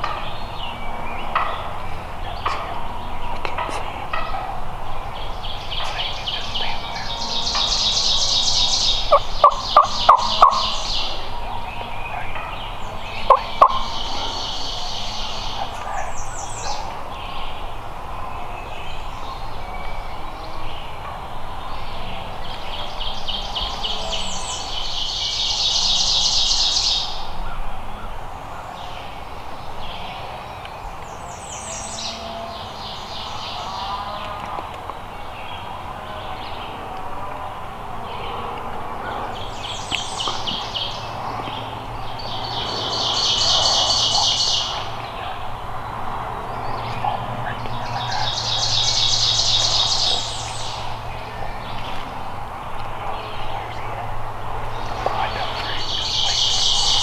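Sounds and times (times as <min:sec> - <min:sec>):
wild turkey calling: 0:00.0 - 0:17.8, 0:35.5 - 0:57.0
songbird trills: 0:00.0 - 0:57.0.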